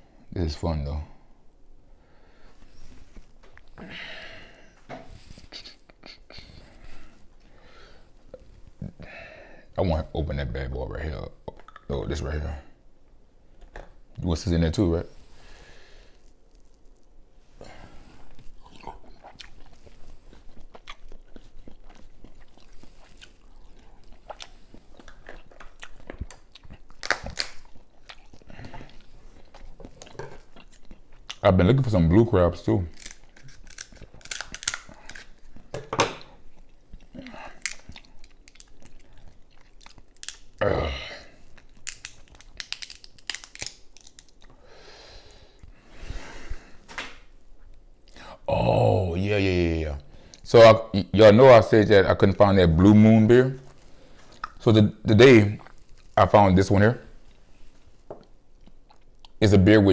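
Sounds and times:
person chewing seafood: 0:17.9 - 0:31.4, 0:32.9 - 0:40.6, 0:41.2 - 0:45.8, 0:57.3 - 0:59.4
crab shell cracking: 0:23.4 - 0:28.3, 0:32.9 - 0:35.4, 0:37.4 - 0:40.6, 0:41.5 - 0:44.5.

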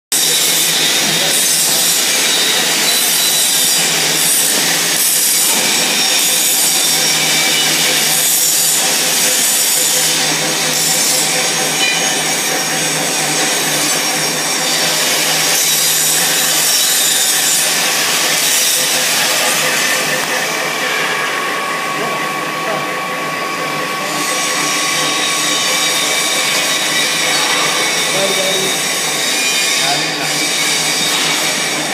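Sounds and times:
low machine hum: 0:17.6 - 0:29.3.

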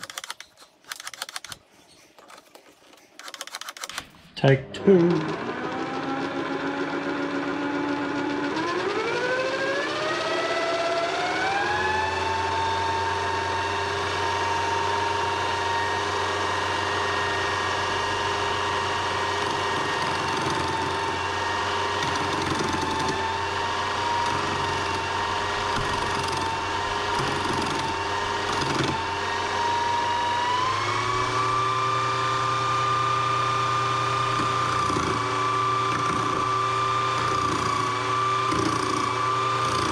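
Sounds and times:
lathe motor whine: 0:04.7 - 0:39.9
chisel scraping spinning wood: 0:18.0 - 0:39.9.

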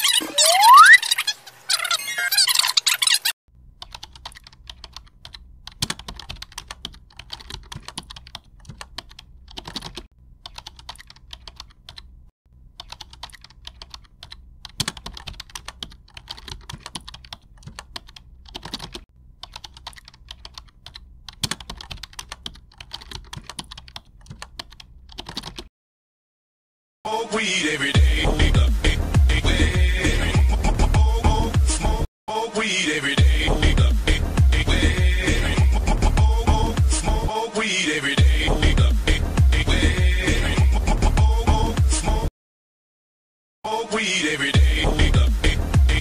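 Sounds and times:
keyboard typing clicks: 0:03.8 - 0:12.1, 0:12.8 - 0:25.7.

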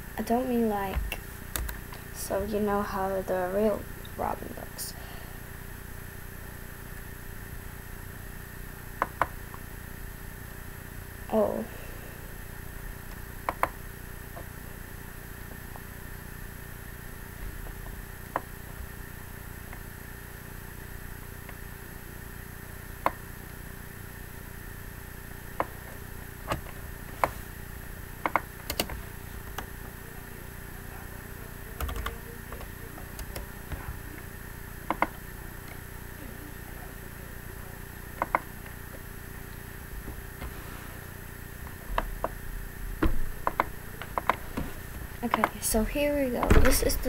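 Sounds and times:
faint electrical hum: 0:00.0 - 0:47.0
computer clicks: 0:31.8 - 0:33.5.

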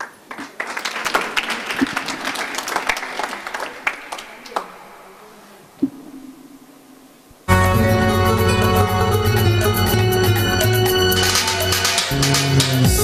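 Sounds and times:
group clapping: 0:00.0 - 0:05.4.

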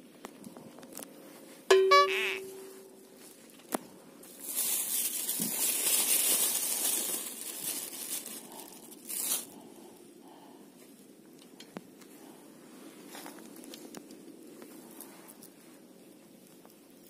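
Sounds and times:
plastic bag crinkling: 0:03.0 - 0:09.7.

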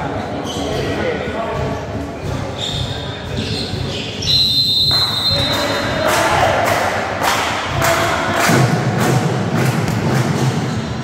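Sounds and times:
crowd noise: 0:00.0 - 0:11.0
high whistle tone: 0:02.6 - 0:06.0
drum beaten in steady rhythm: 0:05.3 - 0:11.0.

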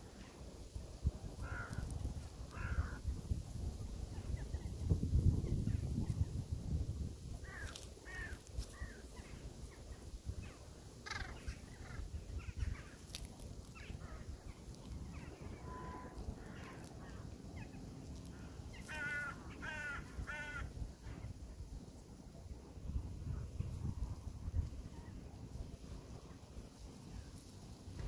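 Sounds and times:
crows cawing: 0:01.4 - 0:01.9, 0:02.5 - 0:03.0, 0:07.4 - 0:09.0, 0:18.3 - 0:20.7.

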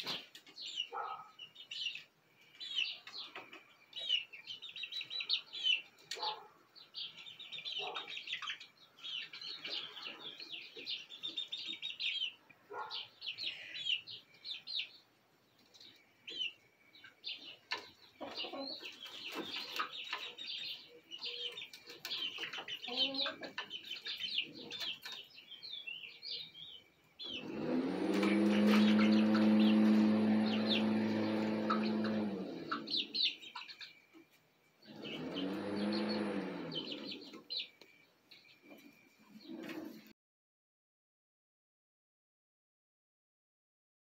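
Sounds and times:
chicks peeping and chirping: 0:00.0 - 0:40.1
low clucking calls: 0:27.2 - 0:33.7.

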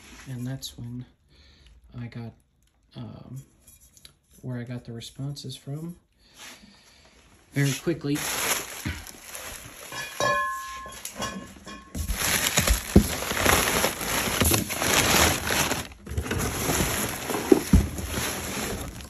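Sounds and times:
packing paper and bubble wrap crinkling: 0:07.6 - 0:19.0.

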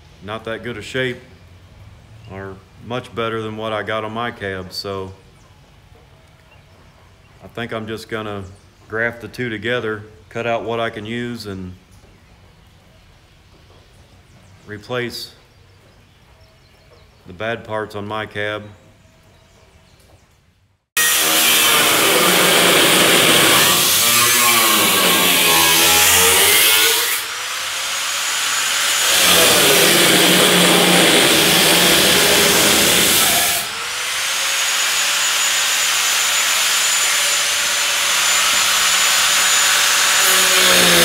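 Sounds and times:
grinder cutting sheet steel: 0:21.0 - 0:41.0.

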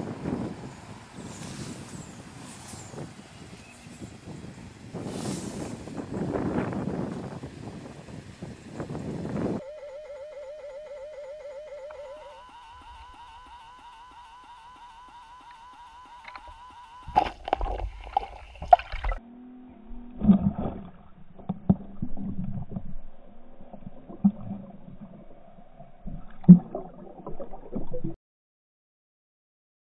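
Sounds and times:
wavering musical tone: 0:09.6 - 0:17.8
water gurgling and sloshing: 0:17.1 - 0:19.2, 0:19.8 - 0:28.2.

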